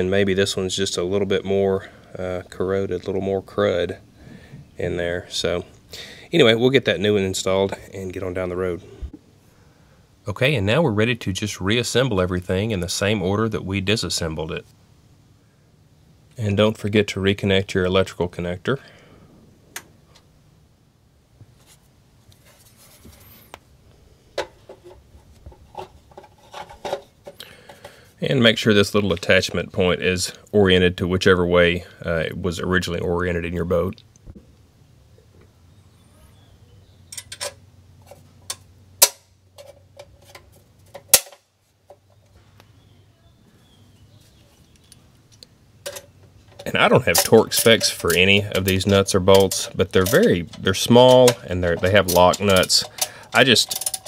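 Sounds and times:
light rubbing: 21.4s - 23.7s, 24.3s - 28.0s, 44.1s - 54.0s
metal bracket clinking and clanking: 37.1s - 41.4s, 45.8s - 54.0s.

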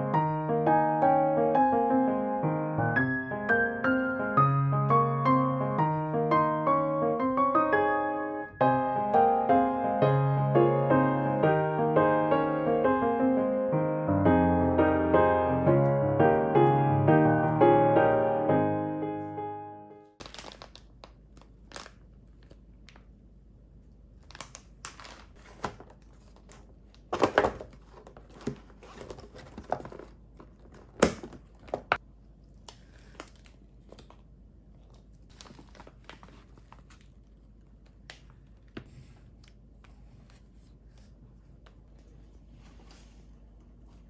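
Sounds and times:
plastic packaging crinkling: 20.2s - 23.1s, 24.2s - 38.7s.

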